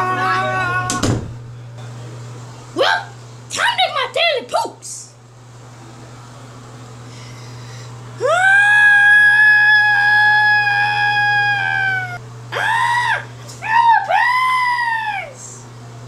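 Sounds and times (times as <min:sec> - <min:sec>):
high-pitched human scream: 0:00.0 - 0:01.0, 0:08.2 - 0:15.4
person wailing: 0:00.0 - 0:01.0, 0:08.2 - 0:15.4.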